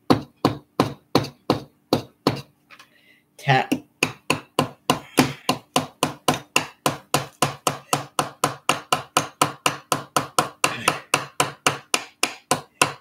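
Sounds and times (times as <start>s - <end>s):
hammer tapping nail into wood: 3.7s - 13.0s.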